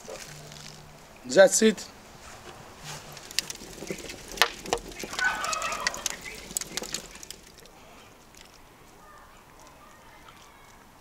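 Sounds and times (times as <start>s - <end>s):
wood fire crackling: 2.0s - 10.7s
faint birdsong: 3.0s - 11.0s.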